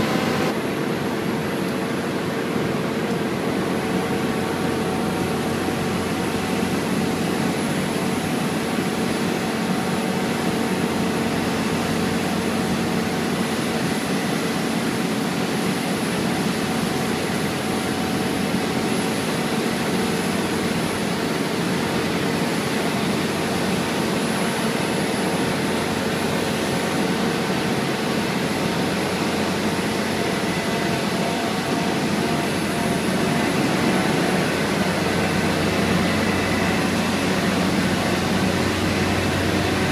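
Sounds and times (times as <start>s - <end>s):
faint high whine: 0.0s - 1.0s
machinery humming: 0.0s - 39.9s
diesel engine droning: 28.4s - 39.9s.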